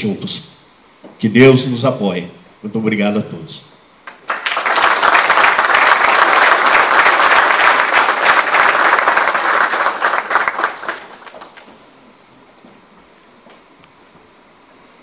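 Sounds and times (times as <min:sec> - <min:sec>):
audience applauding: 0:04.0 - 0:11.8.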